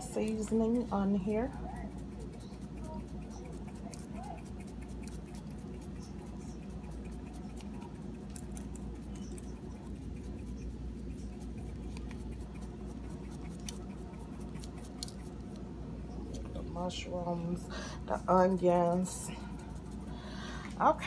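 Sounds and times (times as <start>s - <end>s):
dried herbs ticking onto pizza: 0.0s - 15.7s.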